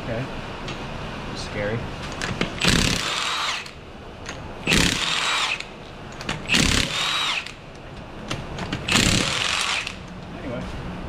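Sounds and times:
impact wrench hammering: 2.3 - 7.6, 8.3 - 10.1.

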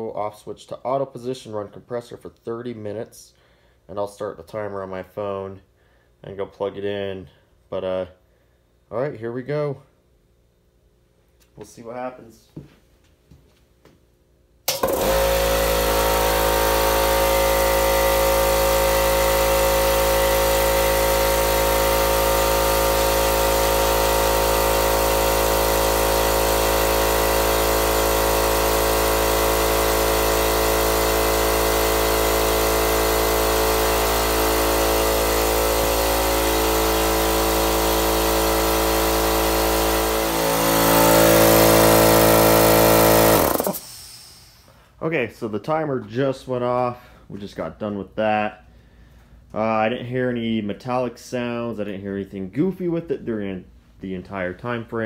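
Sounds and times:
air compressor running: 14.6 - 45.0.

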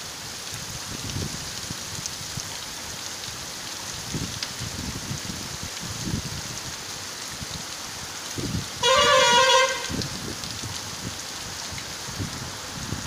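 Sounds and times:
steady rain falling: 0.0 - 13.0
vehicle horn honk: 8.8 - 10.0.

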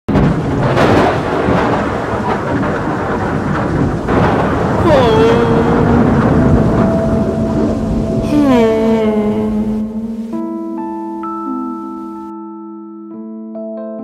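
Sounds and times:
rolling thunder with sharp cracks: 0.1 - 10.2
steady rain: 0.1 - 12.3
sliding tone into held notes: 4.9 - 12.3.

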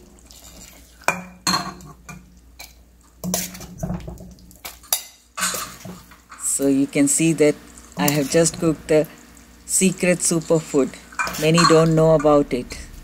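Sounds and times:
metal spoon scraping pot: 11.1 - 12.5.

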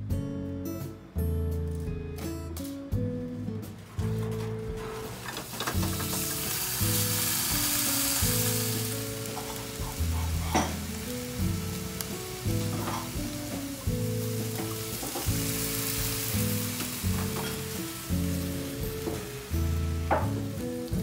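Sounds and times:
beef sizzling in a frying pan: 5.1 - 21.0.

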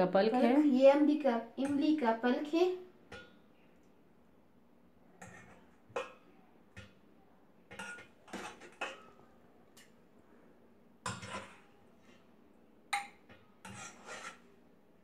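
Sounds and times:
metal spoon scraping a pot: 5.2 - 6.2, 7.7 - 9.2, 11.1 - 12.3, 13.0 - 14.6.

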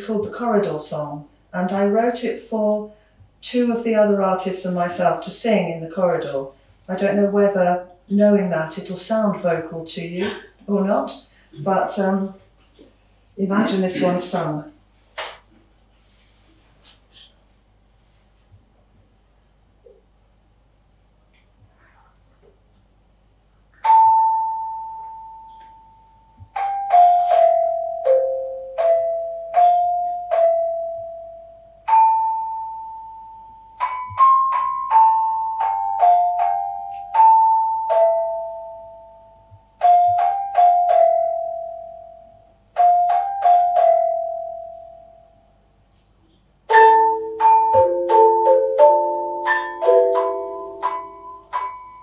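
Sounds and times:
music box playing a slow tune: 23.8 - 45.6, 46.7 - 52.0.

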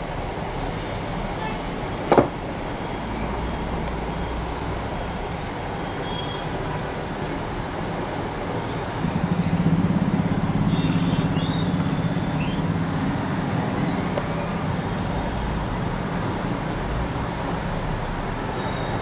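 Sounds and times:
road traffic noise: 0.0 - 19.0
vehicle engine running: 8.9 - 18.5.

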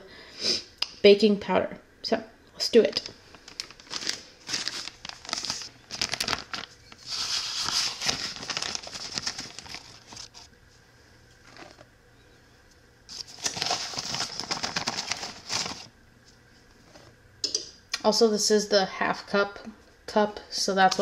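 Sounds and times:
plastic bag crinkling: 2.8 - 10.5, 11.4 - 11.9, 13.1 - 15.9.

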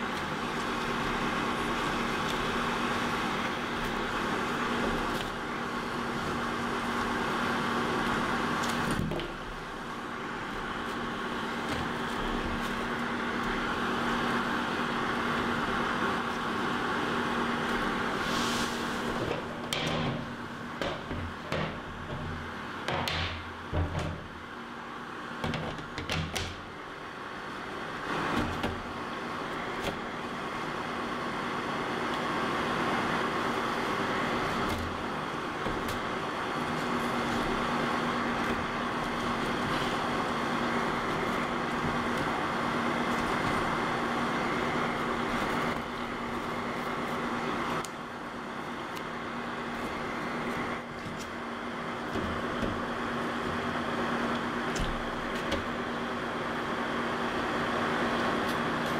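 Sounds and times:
dehydrator fan humming: 0.0 - 58.9.

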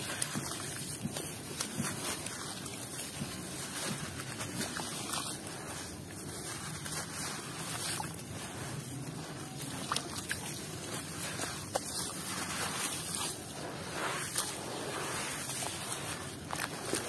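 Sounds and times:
wet sand crumbling: 0.0 - 17.0.

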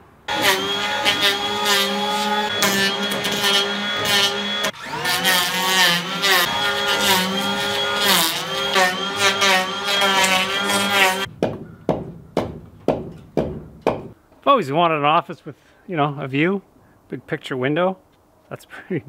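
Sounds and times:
cordless drill motor whining: 0.3 - 11.3
sharp knocks: 11.3 - 14.2.

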